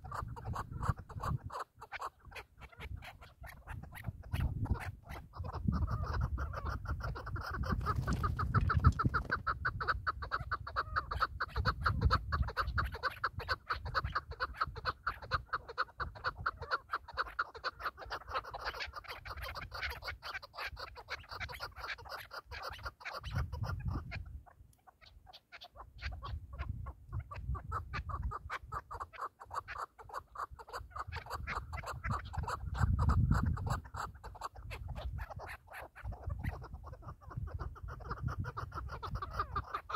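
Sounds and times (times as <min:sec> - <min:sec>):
wind buffeting microphone: 0:00.0 - 0:01.6, 0:02.7 - 0:16.6, 0:23.2 - 0:24.5, 0:26.0 - 0:29.0, 0:30.5 - 0:39.8.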